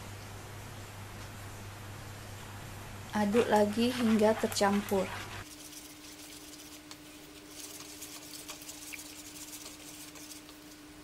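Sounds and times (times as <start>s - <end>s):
steady low hum: 0.0s - 11.0s
whisk beating batter in bowl: 3.6s - 10.9s.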